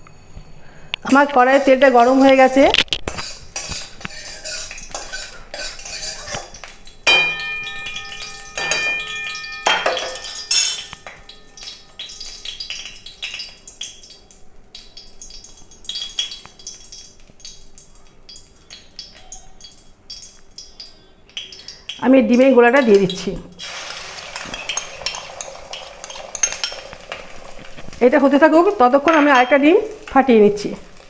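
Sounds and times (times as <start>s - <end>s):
metal utensils clinking on cookware: 1.0s - 13.5s, 18.3s - 30.5s
struck metal ringing: 7.0s - 12.2s.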